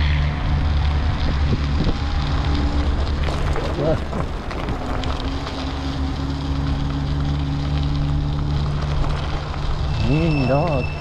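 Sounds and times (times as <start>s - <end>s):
wind on microphone: 0.0s - 5.6s
electric bike motor humming: 0.0s - 11.0s.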